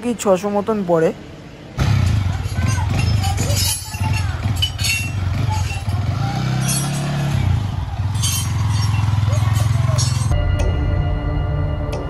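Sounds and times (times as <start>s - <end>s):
motorcycle engine idling and revving: 1.8s - 10.4s.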